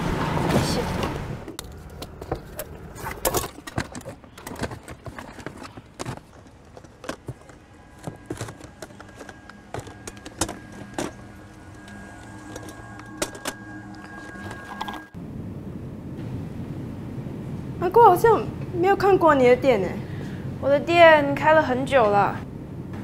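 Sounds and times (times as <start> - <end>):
small objects knocking and clicking: 1.5 - 15.2.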